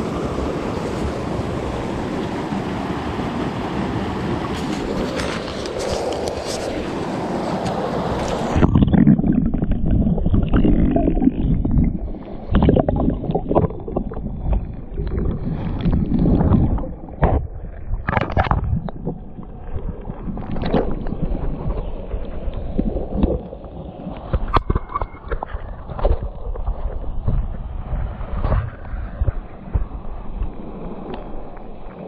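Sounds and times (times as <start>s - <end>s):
muffled underwater creek rumble: 0.0s - 32.0s
underwater knocks and clicks: 8.5s - 32.0s.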